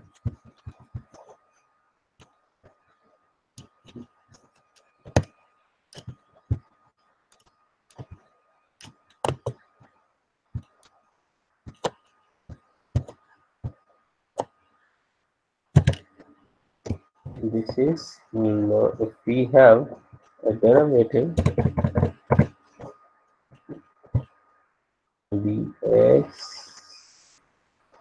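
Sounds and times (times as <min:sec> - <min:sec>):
keyboard and mouse clicks: 0:03.6 - 0:06.7, 0:07.3 - 0:09.7, 0:11.7 - 0:12.1
faint thin whine: 0:22.6 - 0:28.0.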